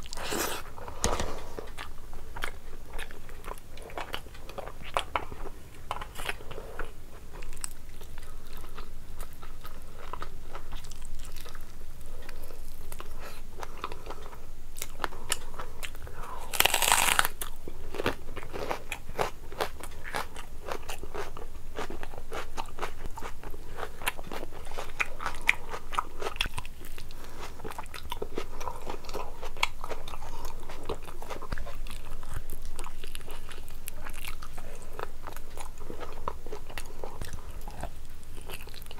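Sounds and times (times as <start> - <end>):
chewing and wet mouth sounds: 0.0 - 38.9
crunchy bite into onion: 16.4 - 18.8.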